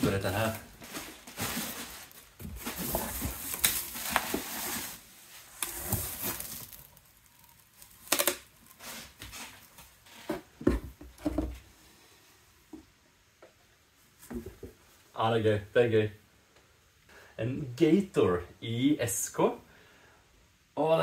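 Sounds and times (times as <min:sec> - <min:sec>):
bubble wrap and plastic crinkling: 0:00.0 - 0:10.1
cardboard rustling: 0:00.0 - 0:10.5.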